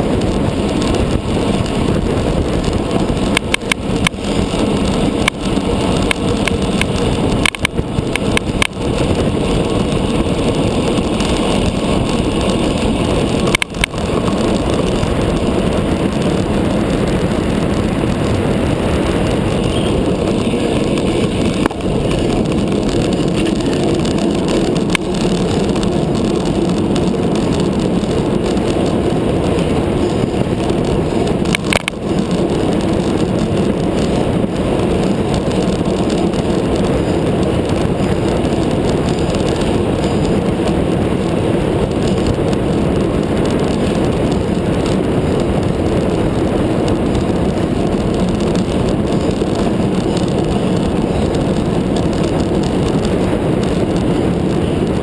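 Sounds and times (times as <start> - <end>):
bike tyres on asphalt: 0.0 - 55.0
wind on microphone: 0.0 - 55.0
sharp clicks: 5.2 - 8.8, 12.8 - 15.5, 30.8 - 32.0.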